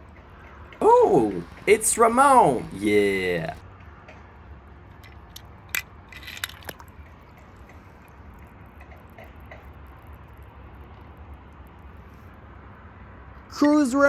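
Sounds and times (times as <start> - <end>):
low steady hum: 0.0 - 13.3
small splash: 6.2 - 7.0.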